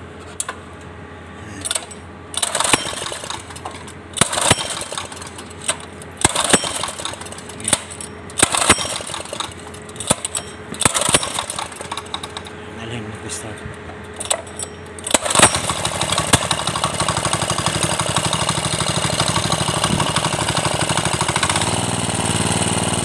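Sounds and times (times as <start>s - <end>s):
small engine running: 1.4s - 23.0s
sharp metallic clicks: 1.6s - 12.5s, 14.0s - 17.3s.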